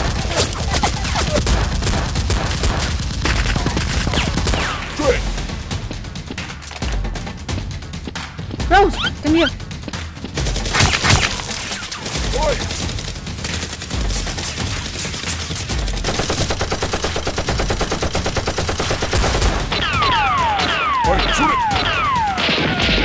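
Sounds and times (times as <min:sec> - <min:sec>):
gunfire: 0:00.0 - 0:05.3, 0:10.4 - 0:23.0.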